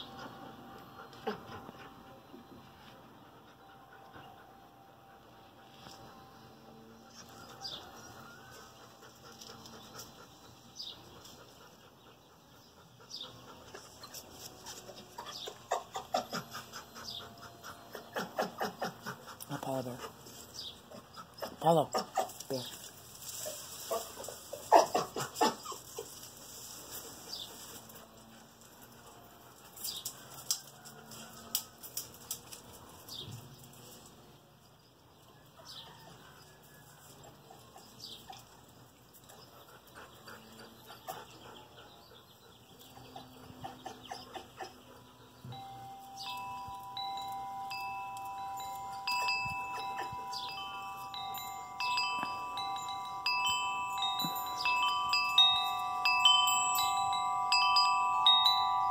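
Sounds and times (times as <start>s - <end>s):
chimes ringing: 45.5s - 58.9s.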